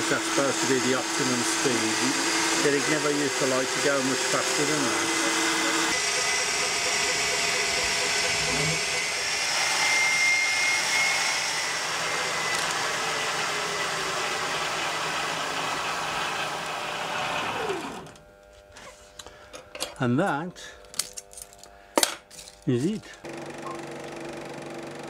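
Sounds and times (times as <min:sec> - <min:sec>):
faint machine whines: 0:00.0 - 0:13.8, 0:17.5 - 0:25.0
falling whine: 0:00.0 - 0:18.2
machine whirring and hissing: 0:00.0 - 0:18.2.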